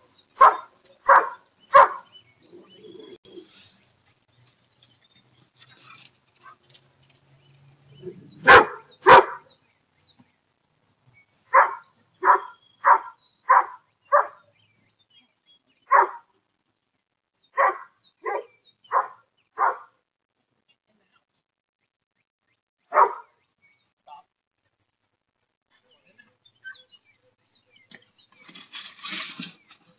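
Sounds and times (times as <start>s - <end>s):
dog barking: 0.4s - 2.0s, 8.4s - 9.5s, 11.5s - 14.5s, 15.9s - 16.3s, 17.6s - 20.0s, 22.9s - 23.3s.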